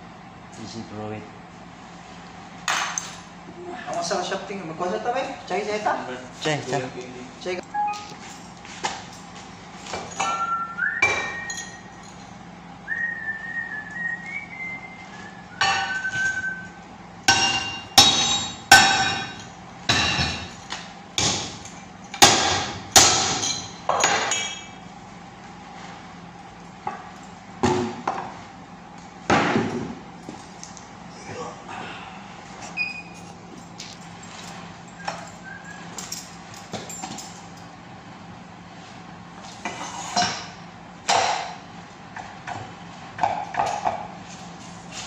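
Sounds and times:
hammer striking metal: 17.3s - 20.5s, 22.2s - 23.8s.

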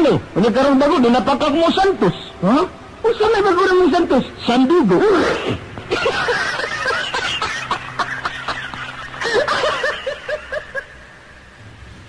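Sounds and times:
person laughing: 5.9s - 11.1s.

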